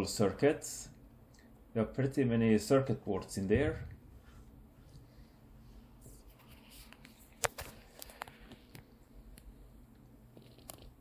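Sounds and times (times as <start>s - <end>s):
low hum: 3.2s - 7.3s.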